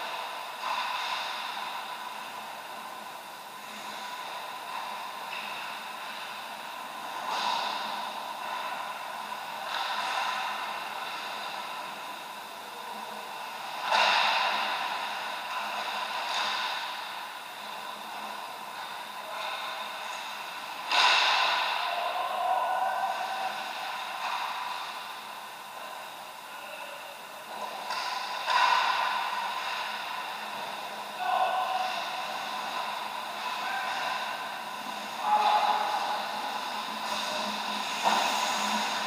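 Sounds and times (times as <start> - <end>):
steady rink hum: 0.0 - 39.0.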